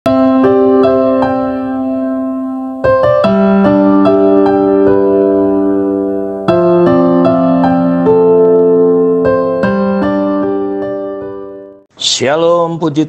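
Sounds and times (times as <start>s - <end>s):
electric piano chords: 0.1s - 11.9s.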